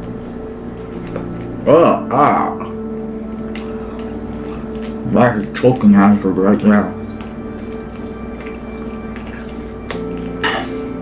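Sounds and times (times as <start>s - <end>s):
soft background music: 0.0s - 11.0s
wet mouth clicks chewing: 3.3s - 5.0s, 7.0s - 10.4s.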